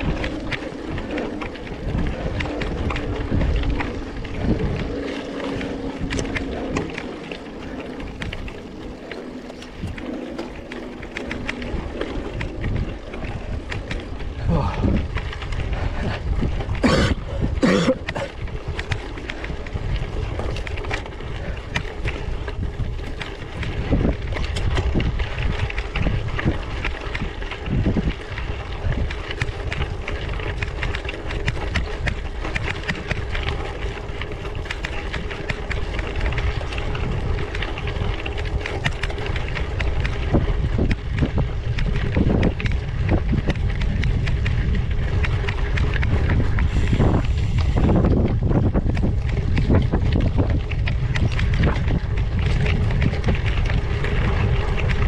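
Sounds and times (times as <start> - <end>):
bike tyres rumbling on rough ground: 0.0 - 55.0
wind buffeting microphone: 0.0 - 55.0.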